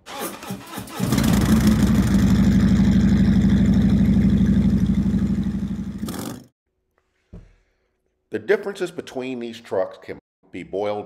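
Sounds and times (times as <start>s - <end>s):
motorcycle engine running: 1.1s - 6.5s.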